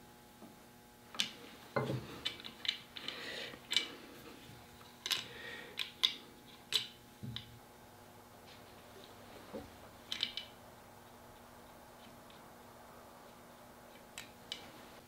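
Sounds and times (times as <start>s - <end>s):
clicks and knocks of wood and metal: 1.1s - 3.9s, 9.5s - 10.6s.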